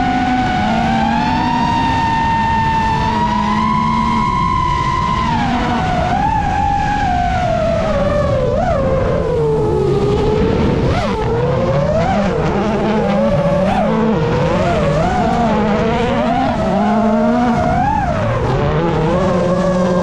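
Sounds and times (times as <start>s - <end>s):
rally car engine revving: 0.0s - 20.0s.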